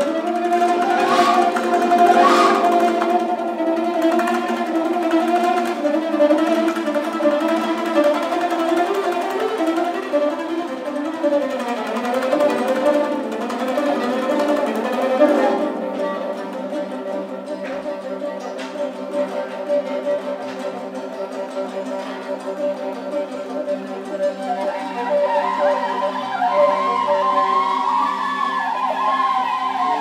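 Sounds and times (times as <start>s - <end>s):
end-blown flute: 0.0s - 4.7s, 22.2s - 30.0s
table zither: 0.0s - 24.6s
plucked lute: 0.0s - 28.2s
bowed string instrument: 0.0s - 30.0s.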